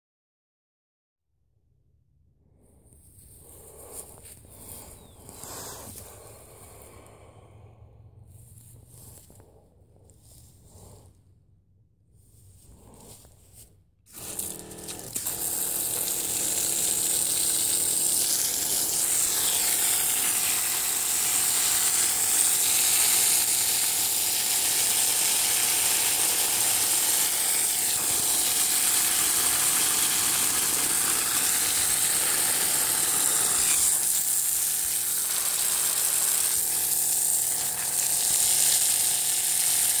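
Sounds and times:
electric pump running: 3.1 - 7.4, 12.5 - 40.0
water spraying onto soil: 3.4 - 7.1, 14.1 - 40.0.

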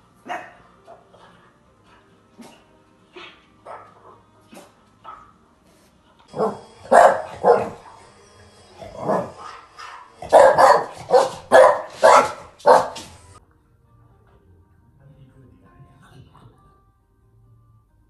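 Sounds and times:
dog barking: 0.2 - 0.6, 3.2 - 5.3, 6.3 - 8.0, 8.9 - 13.2.

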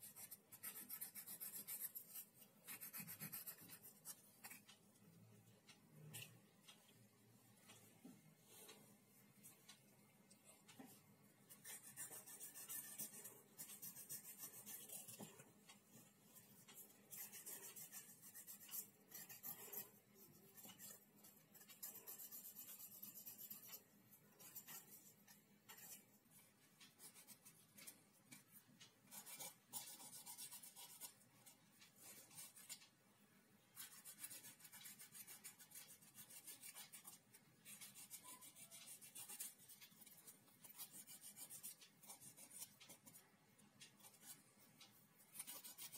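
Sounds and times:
nail file rasping on claws: 0.0 - 4.8, 11.5 - 15.2, 16.7 - 23.8, 33.8 - 43.2, 45.3 - 45.9.

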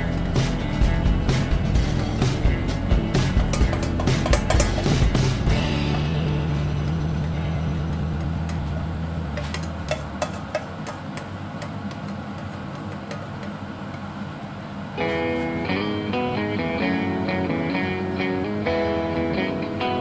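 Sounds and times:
guitar music: 0.0 - 10.6, 15.0 - 20.0
low hum: 0.0 - 17.0
utensil tapping bowl: 3.1 - 14.1
spatula scraping metal bowl: 3.3 - 6.1, 7.3 - 13.7.

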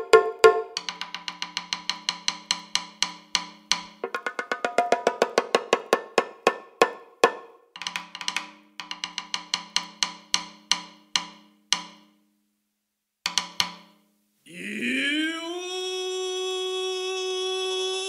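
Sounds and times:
wood block percussion strikes: 0.0 - 12.2, 13.3 - 14.0.

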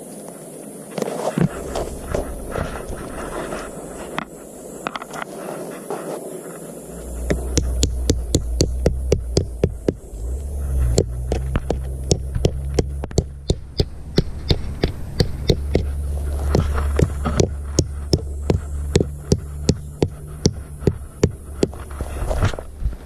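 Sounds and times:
low hum: 1.4 - 23.0
tent peg being hammered: 7.3 - 10.0, 11.0 - 15.9.

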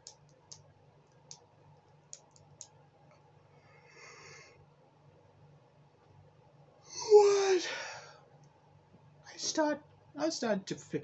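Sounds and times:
breathy yawn: 6.9 - 8.2.

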